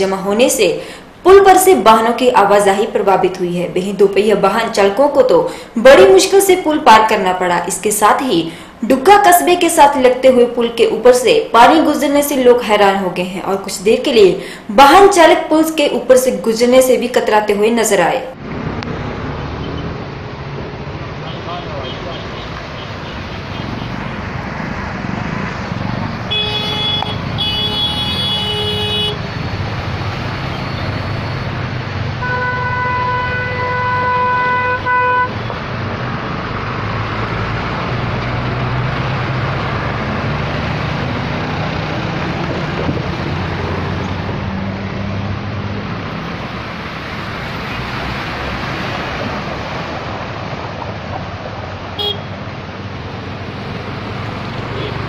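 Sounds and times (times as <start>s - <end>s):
engines rumbling: 0.0s - 55.0s
held car horn: 26.3s - 29.2s, 32.2s - 35.4s, 52.0s - 52.3s
car horn: 26.3s - 29.3s, 32.2s - 35.5s, 52.0s - 52.4s.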